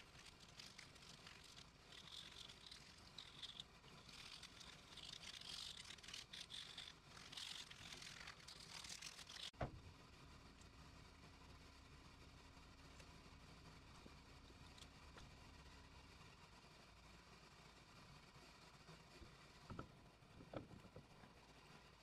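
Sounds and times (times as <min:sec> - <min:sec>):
sandpaper rasping: 0:00.0 - 0:09.5
faint steady hum: 0:00.0 - 0:22.0.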